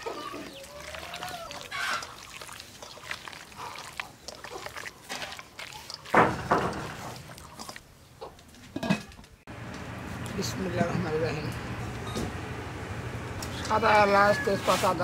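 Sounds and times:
hand squelching wet marinated meat: 0:00.0 - 0:07.9.

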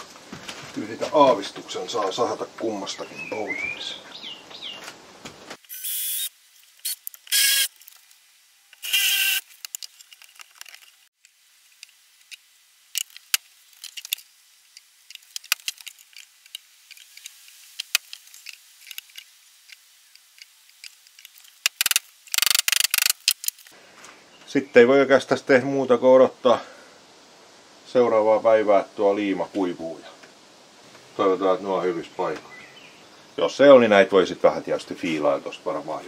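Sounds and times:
wooden parts clicking and tapping: 0:13.0 - 0:23.7.

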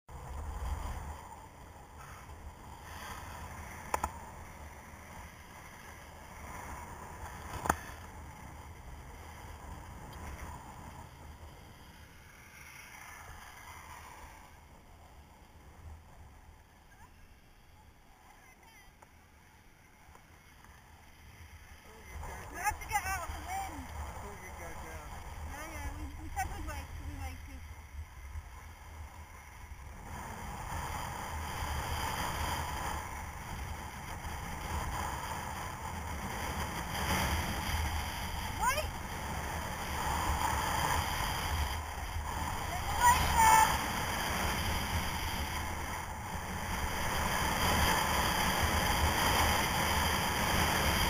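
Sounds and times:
wind rumble on microphone: 0:00.1 - 0:17.1, 0:21.5 - 0:51.0
skis carving over snow: 0:00.1 - 0:51.0
skis hissing on snow: 0:02.0 - 0:09.2.

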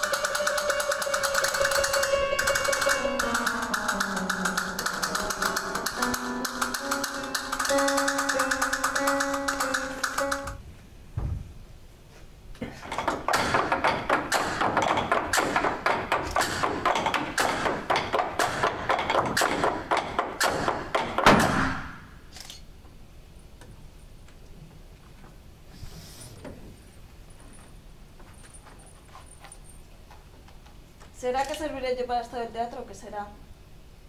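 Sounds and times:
flamenco guitar strumming: 0:00.0 - 0:10.5
sharp percussive taps: 0:00.0 - 0:10.6, 0:13.0 - 0:21.6
thud: 0:11.2 - 0:11.5.

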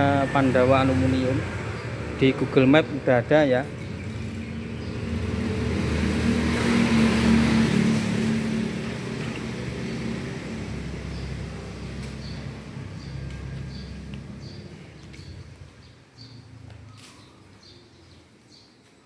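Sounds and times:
vehicle engine passing by: 0:00.0 - 0:17.8.

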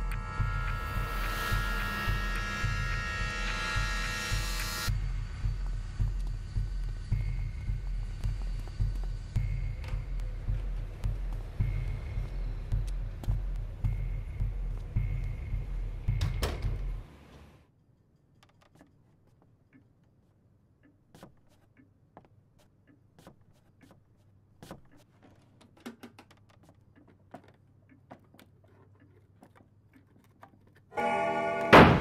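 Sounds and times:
drawers being searched by hand: 0:21.2 - 0:30.9.

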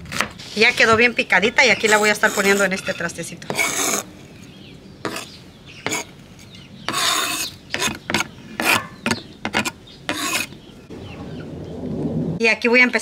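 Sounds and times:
knife scraping plastic cutting board: 0:01.8 - 0:04.1, 0:05.0 - 0:10.6.

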